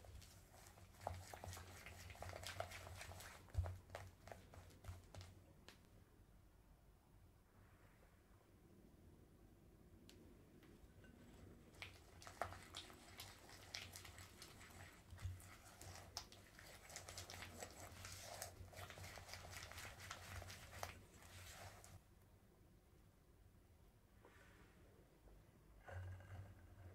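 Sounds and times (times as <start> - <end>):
spatula stirring and scraping bowl: 0.0 - 5.3, 11.1 - 22.0.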